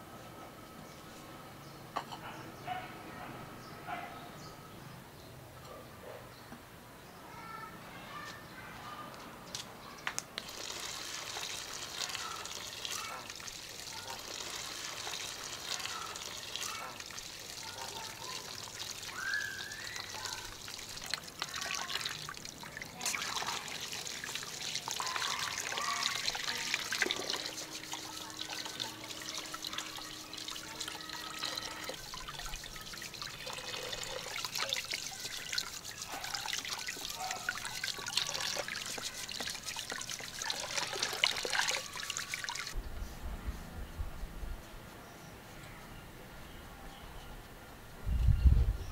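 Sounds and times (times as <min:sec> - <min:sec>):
hands rubbing and rinsing: 0:10.4 - 0:42.8
tap water splashing into basin: 0:10.4 - 0:42.8.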